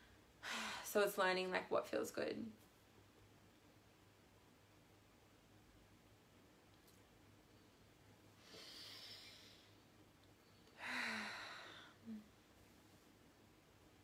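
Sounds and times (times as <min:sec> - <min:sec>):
person breathing: 0:08.4 - 0:09.8, 0:10.6 - 0:12.2.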